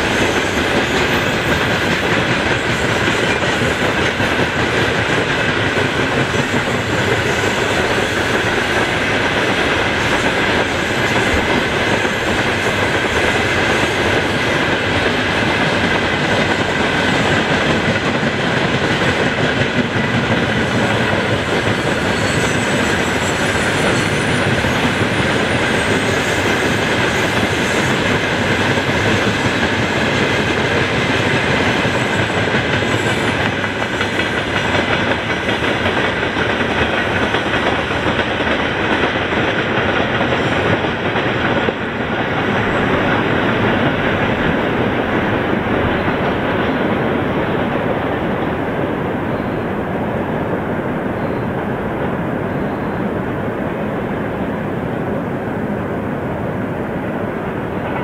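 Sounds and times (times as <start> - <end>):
train wheels rattling on rails: 0.0 - 58.0
high wheel squeal: 21.7 - 28.0.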